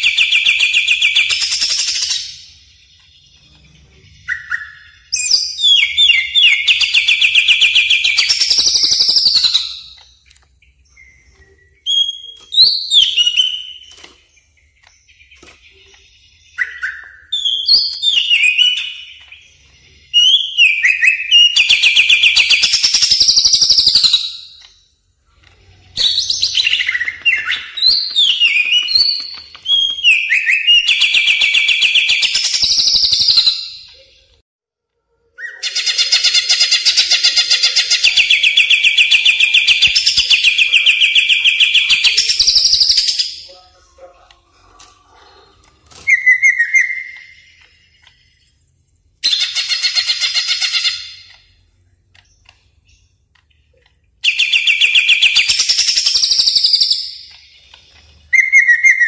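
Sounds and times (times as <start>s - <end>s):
bird song with whistles and trills: 0.0s - 24.9s, 25.8s - 34.4s, 35.3s - 43.7s, 45.9s - 48.6s, 54.2s - 59.0s.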